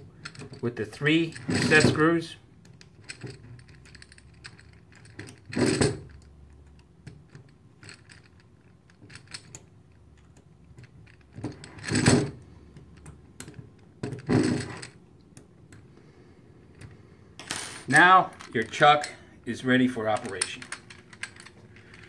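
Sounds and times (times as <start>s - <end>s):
metal handling sounds: 0.0s - 22.0s.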